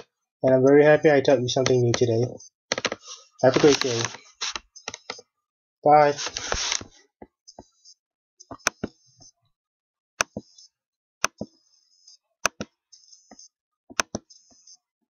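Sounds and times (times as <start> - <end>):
computer mouse clicks: 8.4 - 9.3, 10.2 - 11.6, 12.4 - 14.8.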